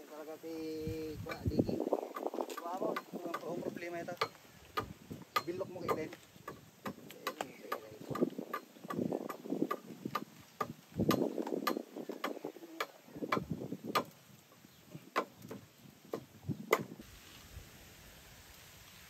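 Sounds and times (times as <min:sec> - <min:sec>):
machete chopping wood: 0:04.2 - 0:14.2.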